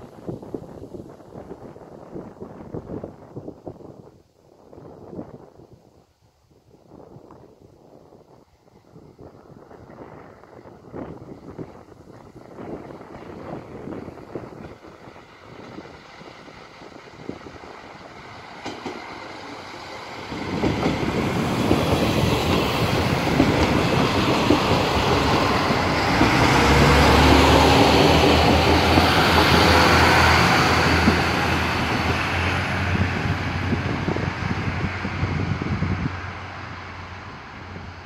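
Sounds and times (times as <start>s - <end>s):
faint wind noise: 0.0s - 38.0s
diesel train rushing past: 8.6s - 38.0s.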